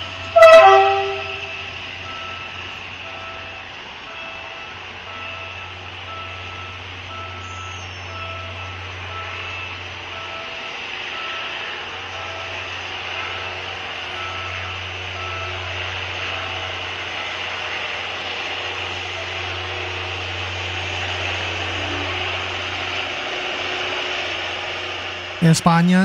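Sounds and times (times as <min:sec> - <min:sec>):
train horn: 0:00.0 - 0:01.8
faint warning beep: 0:00.0 - 0:17.6
train engine humming: 0:00.0 - 0:26.0.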